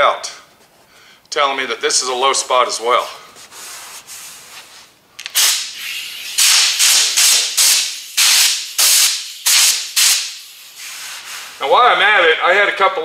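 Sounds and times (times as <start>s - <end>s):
air blow gun hissing blasts: 5.2s - 11.6s.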